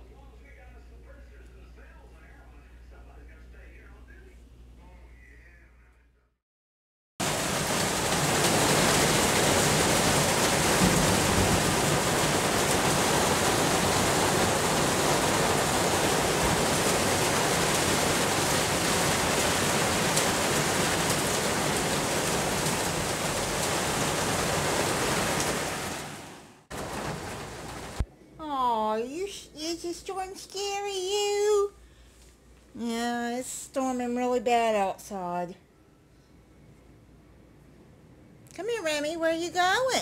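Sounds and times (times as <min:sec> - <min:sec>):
heavy rain pouring: 0:07.2 - 0:28.0.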